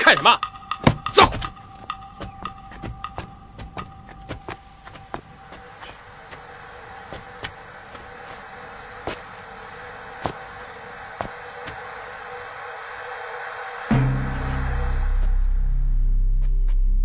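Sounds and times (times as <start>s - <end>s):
steady low hum: 0.4s - 17.0s.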